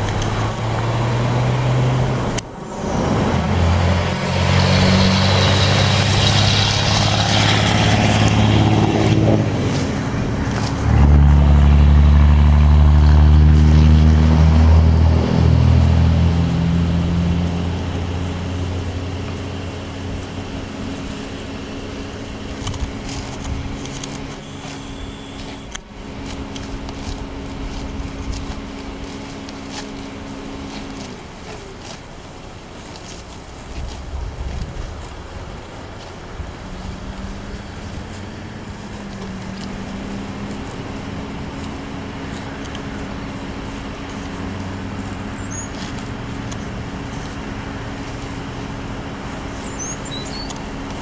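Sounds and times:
car engine idling: 0:00.0 - 0:51.0
irregular low rumble: 0:05.8 - 0:51.0
bird chirping: 0:24.3 - 0:25.8, 0:45.3 - 0:45.9, 0:49.6 - 0:50.7.

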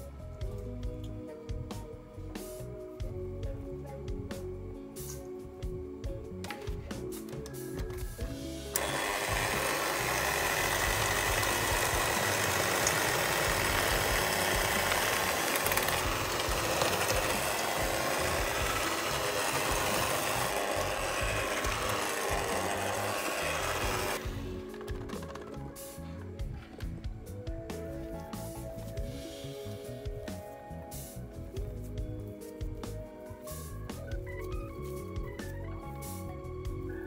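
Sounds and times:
background music: 0:00.0 - 0:37.0
electric hand mixer running: 0:08.5 - 0:25.6.

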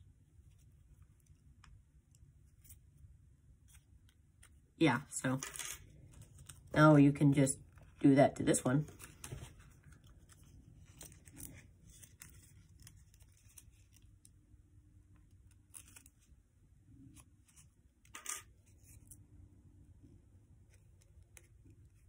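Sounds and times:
paper rustling and crinkling: 0:08.8 - 0:14.1
paper crackle: 0:08.9 - 0:14.3.

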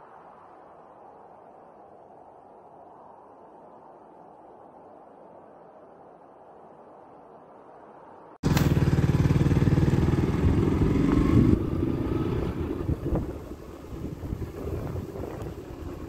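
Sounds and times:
motorcycle engine running: 0:08.4 - 0:16.0
wind noise on microphone: 0:09.9 - 0:16.0.

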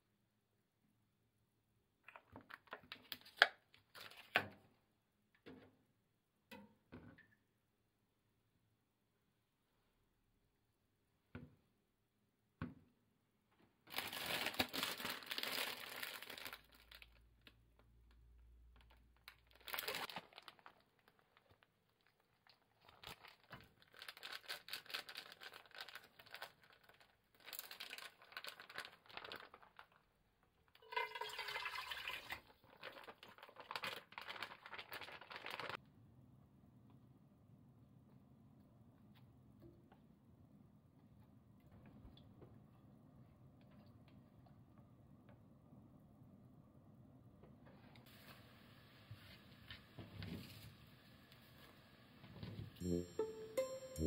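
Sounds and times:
plastic packaging crinkling and tearing: 0:13.9 - 0:17.6, 0:18.8 - 0:30.1, 0:32.6 - 0:35.8
liquid pouring into pot: 0:30.8 - 0:33.2.

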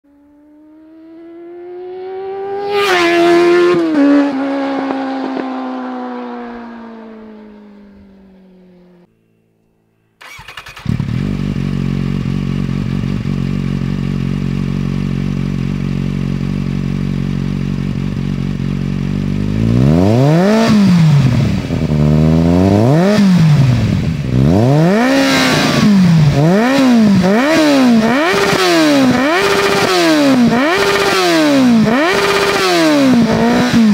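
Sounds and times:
motorcycle engine revving: 0:00.1 - 0:09.1, 0:10.2 - 0:33.9
motorcycle passing at speed: 0:00.1 - 0:09.4, 0:19.3 - 0:33.9
motorcycle engine idling: 0:10.2 - 0:19.8.

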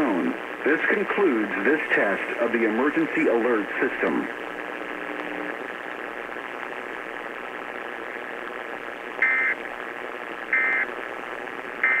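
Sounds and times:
static hiss: 0:00.0 - 0:12.0
data tone bursts from radio: 0:09.2 - 0:09.6, 0:10.5 - 0:11.0, 0:11.8 - 0:12.0.

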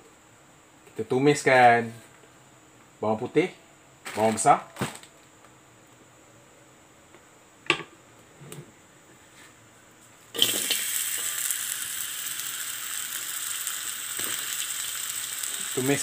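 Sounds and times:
onions sizzling in hot oil: 0:10.3 - 0:16.0.

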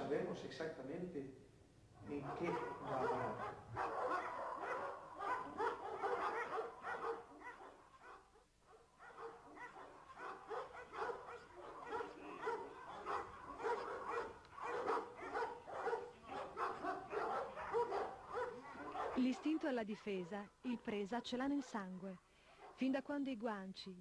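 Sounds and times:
dog barking: 0:02.0 - 0:19.7, 0:21.5 - 0:22.9.

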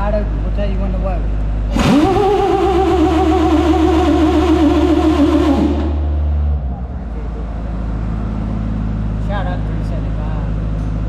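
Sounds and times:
starter motor cranking diesel engine: 0:00.0 - 0:06.2
low hum: 0:00.0 - 0:11.0.

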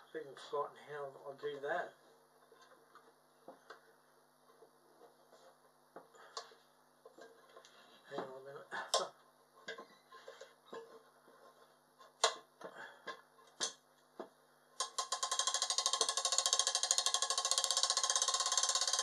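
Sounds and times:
fishing reel ratchet clicking: 0:14.8 - 0:19.0.

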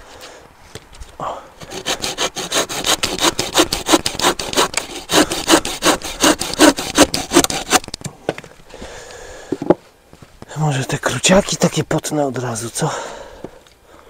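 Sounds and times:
hand saw cutting wood: 0:01.6 - 0:07.9.

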